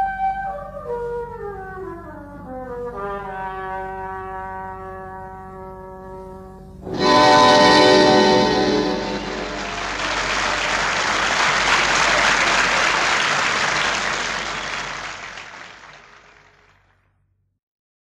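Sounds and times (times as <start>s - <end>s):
tango music chord: 6.8s - 15.4s
audience applauding: 7.0s - 17.0s.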